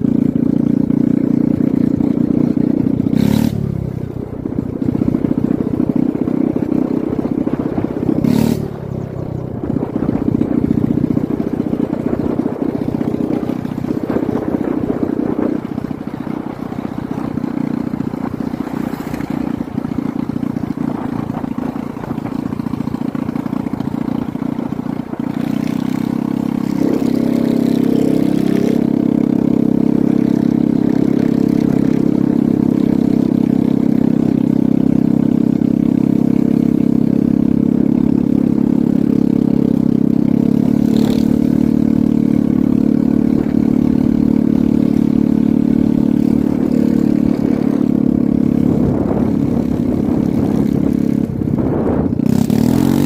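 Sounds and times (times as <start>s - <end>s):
road and wind noise: 0.0s - 53.0s
vehicle engine driving: 0.0s - 53.0s.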